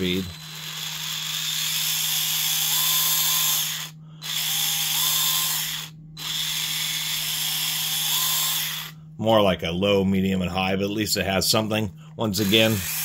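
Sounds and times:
electric screwdriver whirring: 0.0 - 8.9, 12.4 - 13.0.

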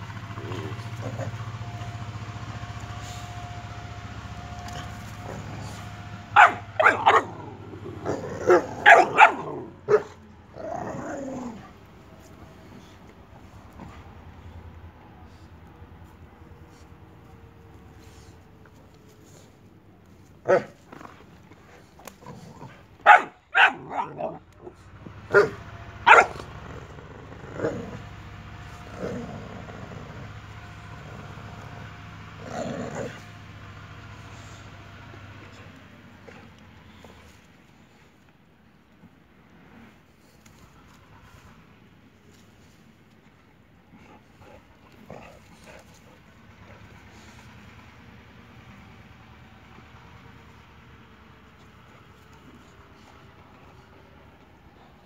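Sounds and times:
dog growling: 0.0 - 1.8, 4.6 - 11.8, 20.5 - 33.3, 44.0 - 46.9
dog barking: 6.3 - 10.2, 20.5 - 20.8, 23.0 - 24.4, 25.3 - 26.5.

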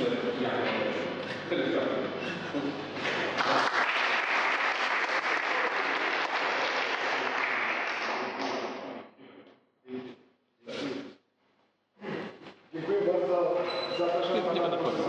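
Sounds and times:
audience applauding: 3.1 - 8.8.

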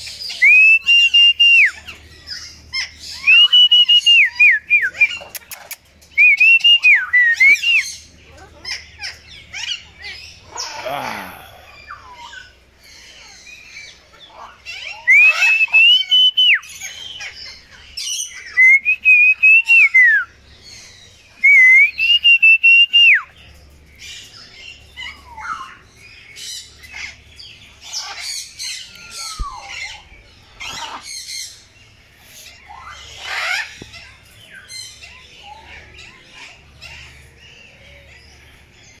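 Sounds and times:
bird calls and chirps: 0.0 - 39.0
parrot screeching: 32.7 - 34.1.

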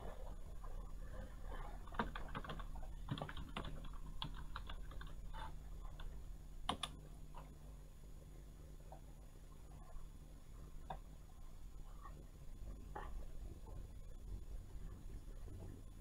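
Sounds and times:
keyboard keys clicking: 1.9 - 5.2, 6.7 - 7.0.

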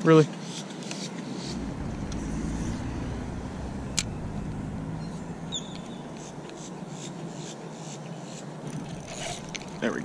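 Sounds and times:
reel ticking while wound: 8.8 - 10.0.

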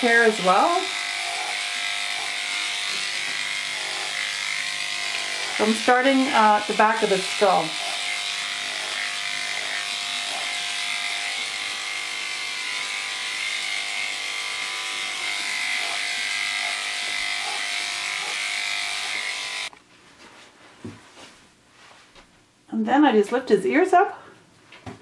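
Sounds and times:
electric clipper humming: 0.0 - 19.7.

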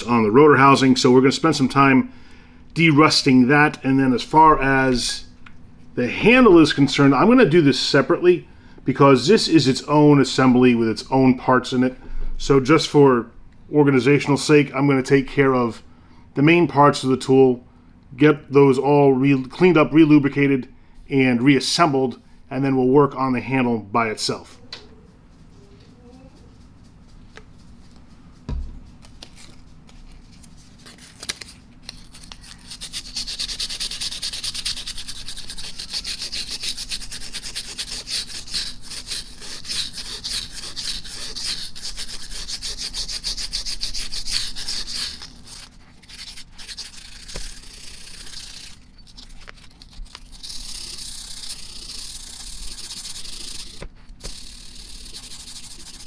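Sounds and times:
rasping scrubbing on steel: 32.8 - 48.9.

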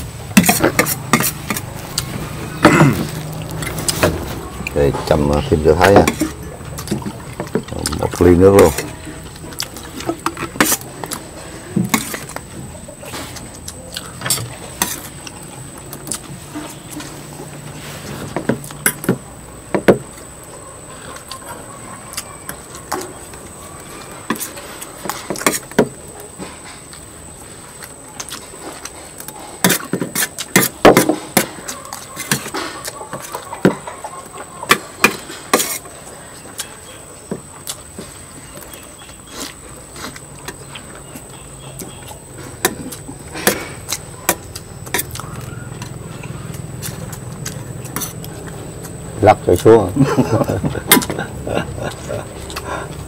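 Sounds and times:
utensils clinking on plates: 0.4 - 12.5.

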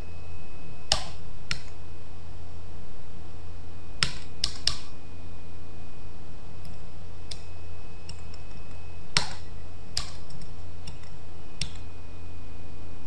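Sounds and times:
steady hum: 0.0 - 13.0
computer mouse clicks: 4.0 - 4.9, 8.1 - 11.9.

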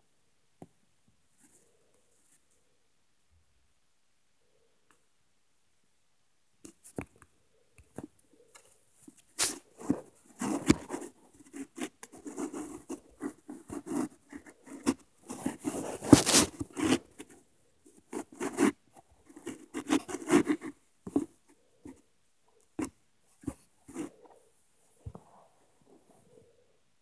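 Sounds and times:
scratching and rustling: 8.0 - 22.0, 22.8 - 26.4.

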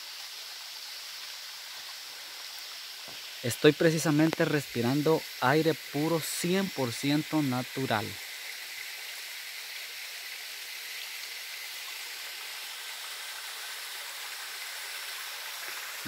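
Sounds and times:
waterfall rushing: 3.0 - 8.2.

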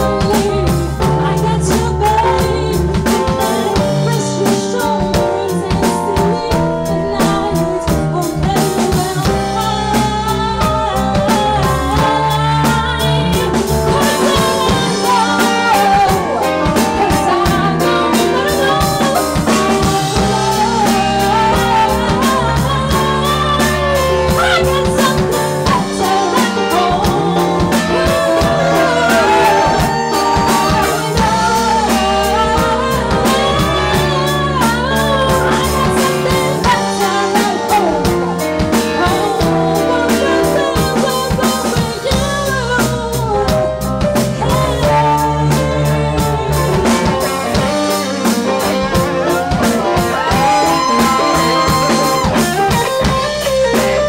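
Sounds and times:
drum kit: 0.0 - 54.0
electric guitar: 0.0 - 54.0
woman singing: 0.0 - 54.0.

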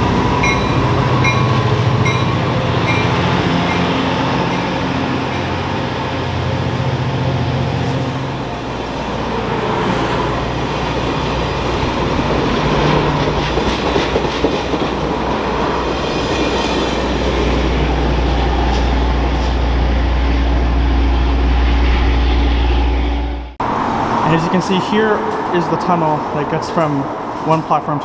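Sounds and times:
train wheels rumbling on rails: 0.0 - 24.4
deep hum: 19.0 - 23.7.

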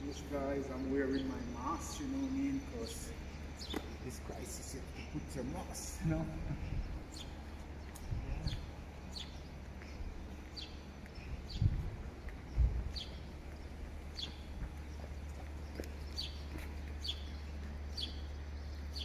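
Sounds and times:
bird chirping: 0.0 - 19.0
steady low rumble: 0.0 - 19.0
dull low thumps: 6.1 - 9.0, 9.9 - 17.1.

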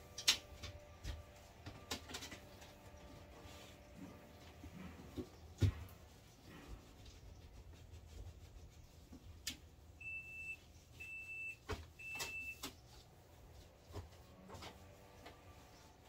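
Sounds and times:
refrigerator alarm beeping: 10.0 - 12.7.

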